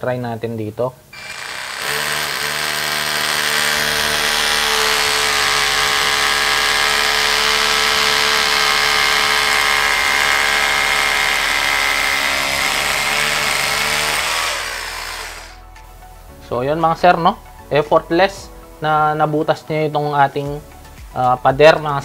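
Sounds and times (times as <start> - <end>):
rotary hammer drilling into wall: 1.2 - 15.6.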